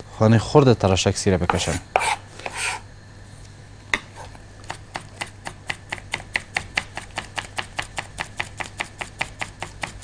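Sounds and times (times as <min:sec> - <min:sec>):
knife chopping on wooden board: 0:04.7 - 0:10.0.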